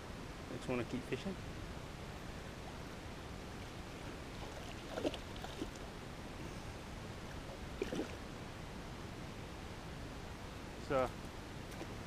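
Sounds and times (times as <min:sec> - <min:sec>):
low background hiss: 0:00.0 - 0:12.0
water splashing in landing net: 0:04.4 - 0:05.8, 0:07.8 - 0:08.2.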